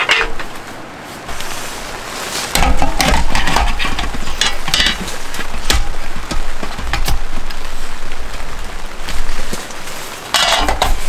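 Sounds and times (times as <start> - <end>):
portable stove clicking and clattering: 0.0 - 0.6, 2.5 - 8.4, 10.3 - 11.0
rain on tent: 0.0 - 11.0.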